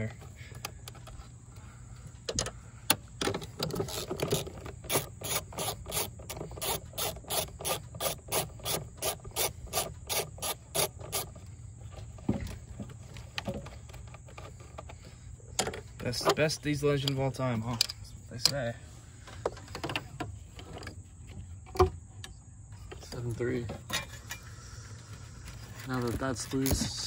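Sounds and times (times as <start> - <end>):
socket ratchet clicking: 3.6 - 11.3.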